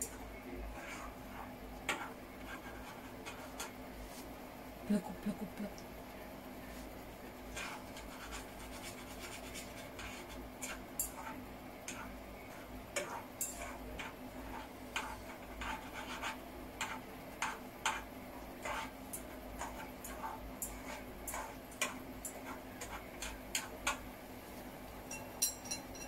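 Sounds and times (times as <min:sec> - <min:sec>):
chopsticks scraping saucepan: 0:00.0 - 0:03.8, 0:07.5 - 0:24.0.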